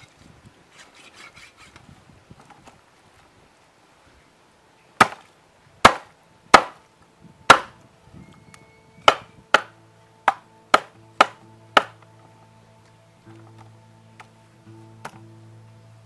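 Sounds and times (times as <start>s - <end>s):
soft background music: 6.0s - 16.0s.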